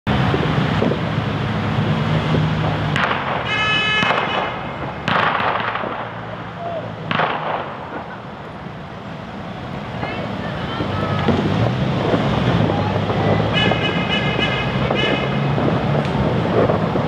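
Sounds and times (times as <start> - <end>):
fireworks bangs: 0.2 - 1.2, 2.2 - 8.6, 9.9 - 17.0
wind noise: 9.6 - 17.0.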